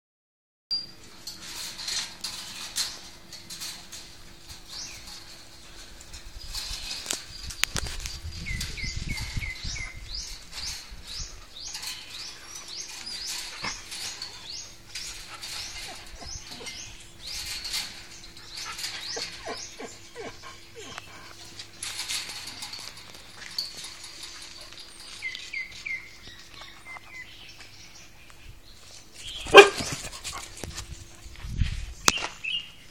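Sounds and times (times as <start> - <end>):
birds chirping: 4.5 - 30.7
dog barking: 29.5 - 29.9.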